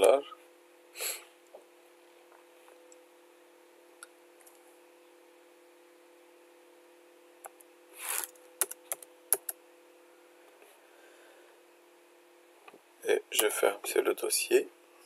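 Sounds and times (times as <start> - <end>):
faint steady hum: 0.0 - 15.0
computer keyboard keystrokes: 8.6 - 9.6.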